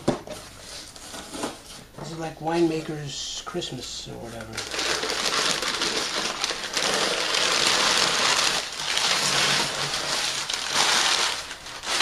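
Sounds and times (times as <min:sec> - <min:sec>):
packing paper rustling: 0:04.2 - 0:12.0.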